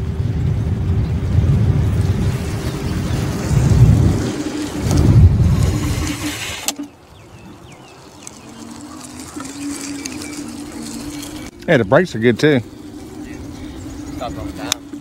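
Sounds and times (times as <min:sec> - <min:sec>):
faint steady hum: 0:00.0 - 0:15.0
gusty wind: 0:00.0 - 0:15.0
road rumble: 0:00.0 - 0:15.0
bird chirps: 0:06.8 - 0:15.0.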